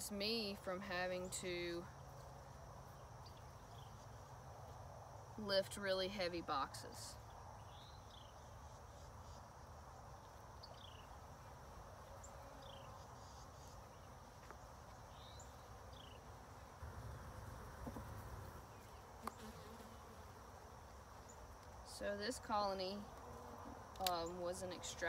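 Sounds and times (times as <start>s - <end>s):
bees buzzing: 15.1s - 21.4s.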